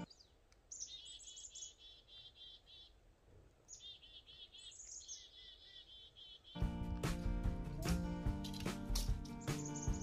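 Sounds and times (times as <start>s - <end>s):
songbird chirping faintly: 0.0s - 10.0s.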